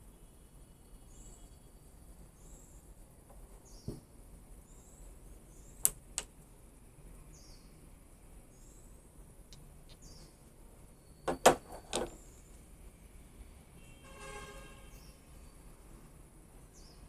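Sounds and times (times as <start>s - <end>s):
birds chirping: 0.0s - 6.2s, 7.1s - 12.8s, 14.6s - 16.0s, 16.6s - 17.0s
dull knock: 3.9s - 4.1s.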